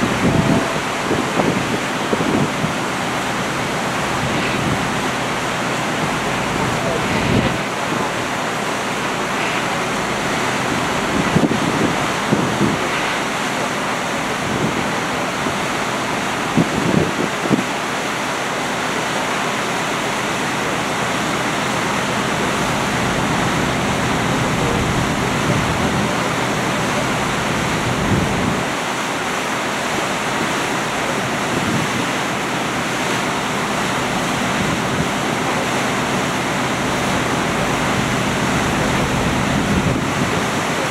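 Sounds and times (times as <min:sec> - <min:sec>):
wind buffeting microphone: 0:00.0 - 0:08.4, 0:09.2 - 0:13.4, 0:14.2 - 0:17.8, 0:31.2 - 0:32.2, 0:37.0 - 0:40.9
wind and sea rushing: 0:00.0 - 0:40.9.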